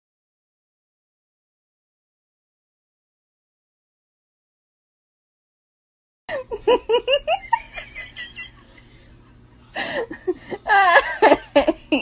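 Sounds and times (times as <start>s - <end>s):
person laughing: 6.3s - 12.0s.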